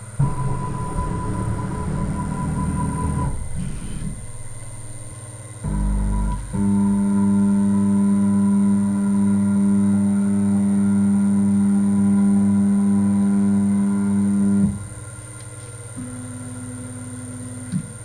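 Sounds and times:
quiet high-pitched hum: 0.0s - 18.0s
router motor hum: 5.6s - 14.8s.

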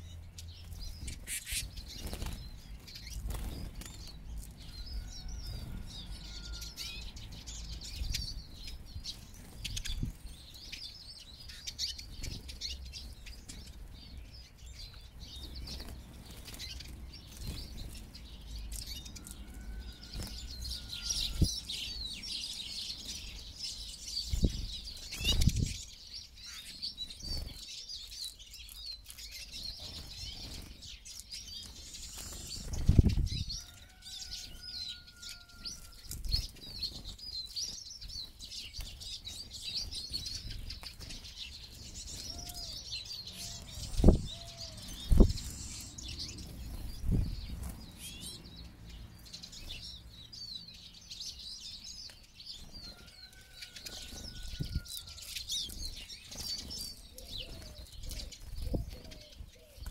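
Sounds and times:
small birds twittering: 0.0s - 59.9s
wings fluttering: 0.6s - 5.9s, 15.3s - 21.7s, 24.3s - 25.8s, 26.5s - 34.4s, 43.4s - 48.3s.

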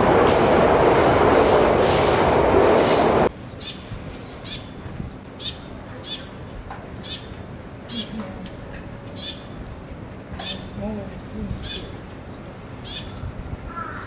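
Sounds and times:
train rumbling: 0.0s - 5.3s
street background: 0.0s - 14.0s.

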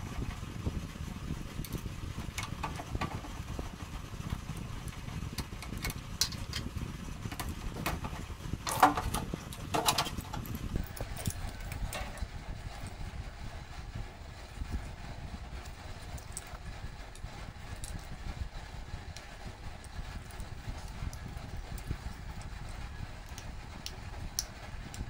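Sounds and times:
low rumble: 0.0s - 25.0s
metal parts clicking and tapping: 5.4s - 6.7s, 7.3s - 12.9s, 23.2s - 25.0s.

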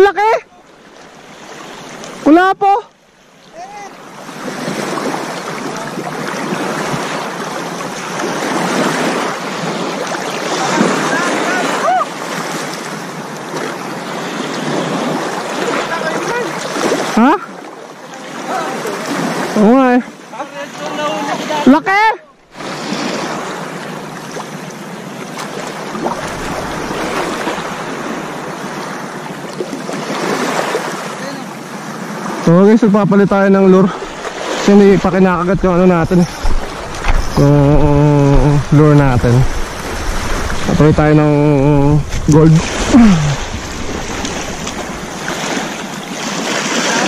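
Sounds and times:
water lapping over pebbles: 22.4s - 31.1s, 33.8s - 47.0s.

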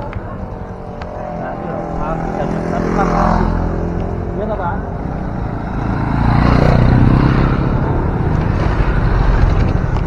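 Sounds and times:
motorcycles passing: 0.0s - 10.0s
wind rumble on microphone: 6.8s - 10.0s.

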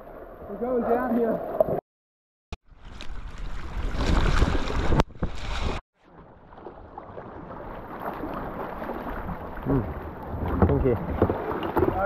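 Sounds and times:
paddles splashing water: 2.7s - 12.0s
water lapping: 2.8s - 12.0s.

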